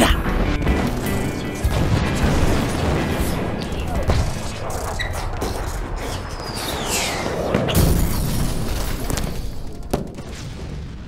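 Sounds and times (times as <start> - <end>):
booming low hits: 1.7 - 4.3
falling whistling glide: 6.1 - 7.5.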